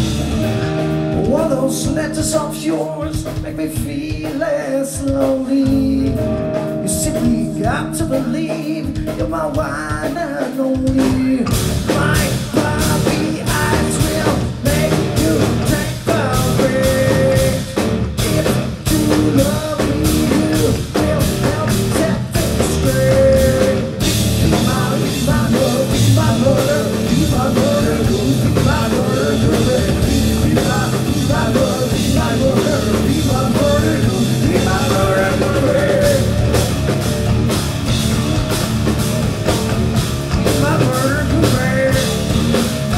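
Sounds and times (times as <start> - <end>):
heavy rock band playing: 0.0 - 42.9
man singing: 1.1 - 36.7, 40.4 - 42.9.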